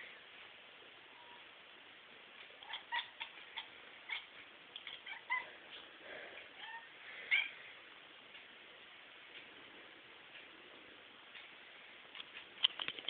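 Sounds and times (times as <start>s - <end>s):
cat chirping and meowing: 2.6s - 5.6s, 6.5s - 7.6s.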